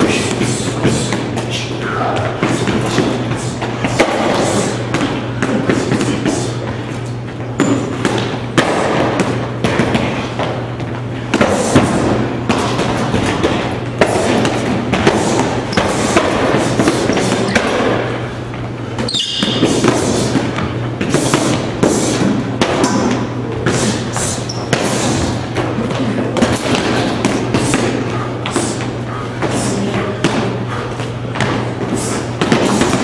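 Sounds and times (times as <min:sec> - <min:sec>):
punches and kicks on heavy bags: 0:02.0 - 0:06.6, 0:07.6 - 0:18.2, 0:19.4 - 0:33.0
short high squeak: 0:19.1 - 0:19.6.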